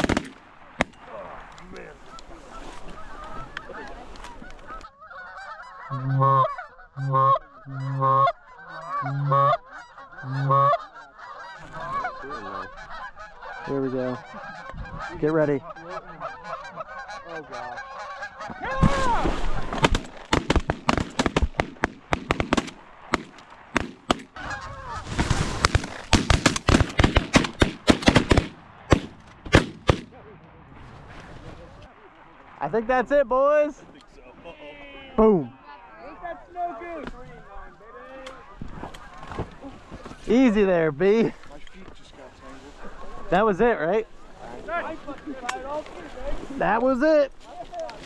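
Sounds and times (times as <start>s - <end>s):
shotgun fire: 0.0s - 1.0s, 18.8s - 24.3s, 25.3s - 30.2s
geese honking: 0.0s - 28.5s, 32.6s - 48.0s
loud two-note goose honks: 5.9s - 10.8s.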